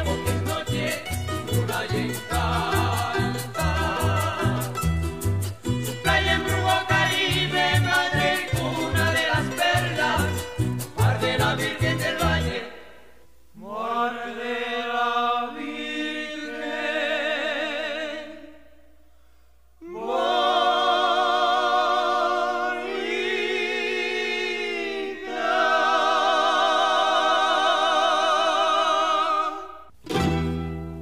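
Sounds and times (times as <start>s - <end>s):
voices singing in harmony: 0.0s - 18.8s, 19.8s - 30.0s.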